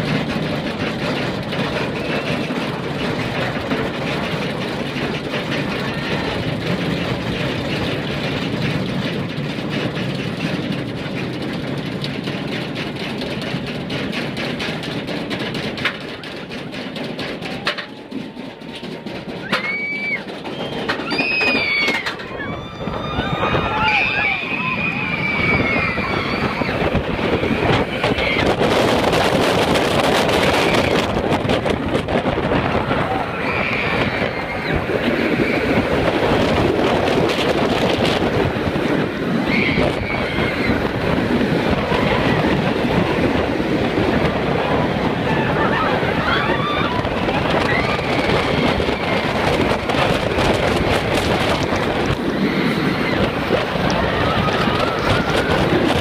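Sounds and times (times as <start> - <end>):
roller coaster rumbling on track: 0.0 - 56.0
wind rushing over microphone: 20.1 - 56.0.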